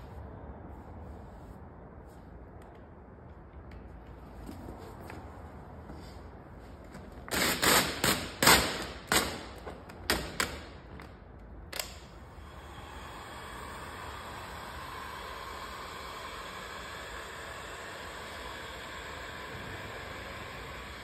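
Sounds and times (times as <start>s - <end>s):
heat gun blowing hiss: 12.2s - 21.0s.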